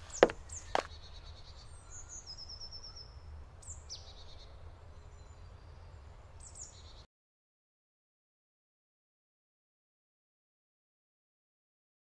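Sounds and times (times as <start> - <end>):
songbirds chirping: 0.0 - 7.1.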